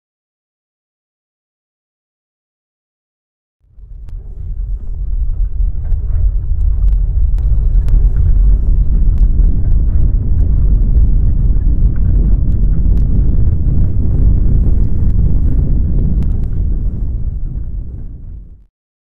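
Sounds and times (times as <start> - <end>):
deep earthquake rumble: 3.6 - 18.7.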